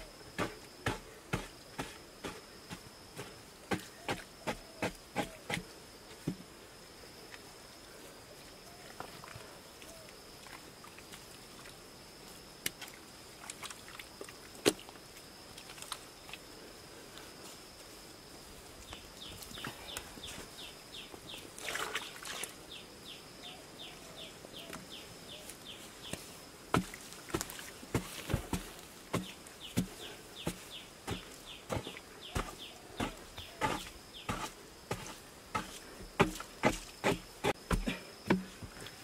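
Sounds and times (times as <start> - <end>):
hand tool digging earth: 0.0 - 5.7, 26.0 - 39.0.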